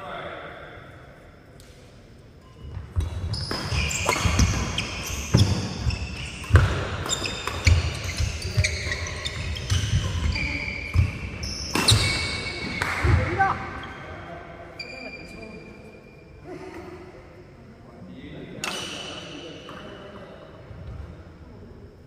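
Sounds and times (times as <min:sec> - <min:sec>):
shoes squeaking: 0:02.5 - 0:14.2.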